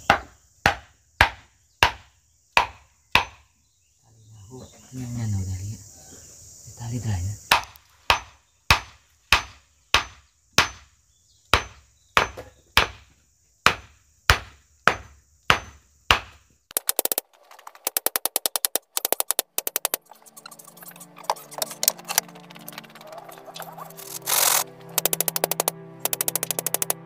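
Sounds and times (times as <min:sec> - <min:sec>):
hammer knocking on wood: 0:02.6 - 0:03.4, 0:11.6 - 0:13.0
fast ticking clicks: 0:16.7 - 0:27.0.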